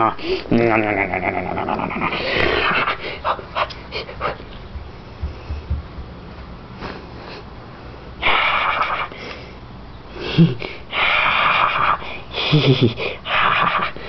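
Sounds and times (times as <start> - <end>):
ferret hissing: 10.2 - 12.5.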